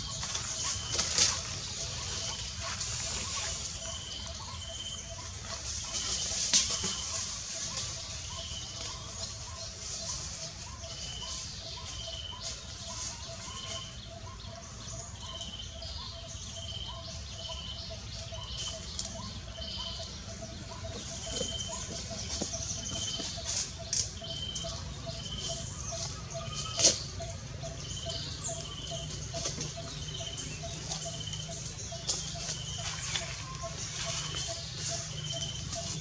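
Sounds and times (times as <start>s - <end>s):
birds calling: 0.0s - 36.0s
low outdoor hum: 0.0s - 36.0s.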